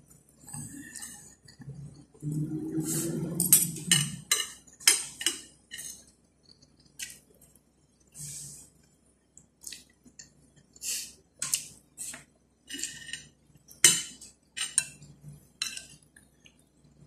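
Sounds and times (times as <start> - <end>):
cutlery clinking and scraping on plate: 3.4 - 6.1, 11.4 - 15.0, 15.6 - 16.1.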